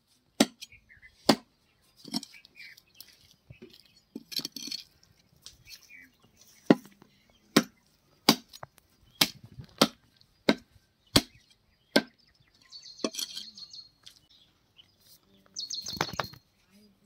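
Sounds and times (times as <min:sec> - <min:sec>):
cleaver chopping on wooden block: 0:07.5 - 0:08.6, 0:09.2 - 0:12.2.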